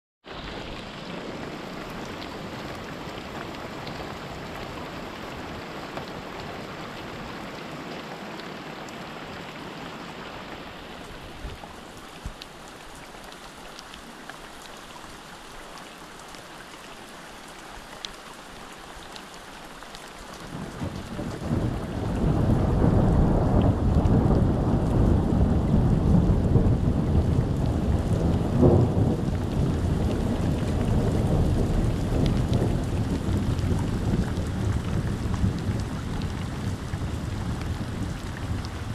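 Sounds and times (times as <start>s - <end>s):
rain hissing: 0.3s - 14.5s, 20.0s - 38.9s
thunder rumbling: 20.5s - 38.9s.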